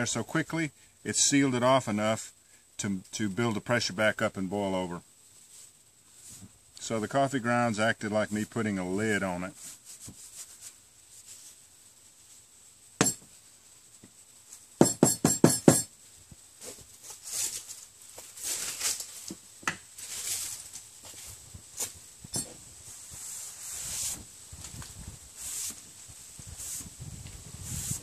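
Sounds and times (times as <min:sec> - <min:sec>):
cloth wiping wet tabletop: 0:23.0 - 0:24.3, 0:25.3 - 0:28.0.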